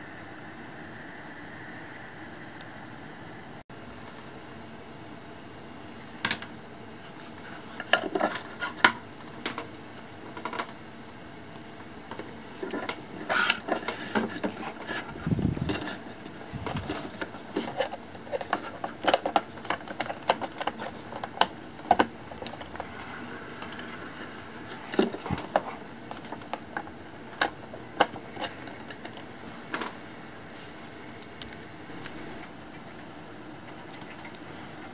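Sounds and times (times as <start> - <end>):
cable plugs clicking and rustling: 6.2 - 10.8, 11.6 - 23.0, 23.6 - 30.0.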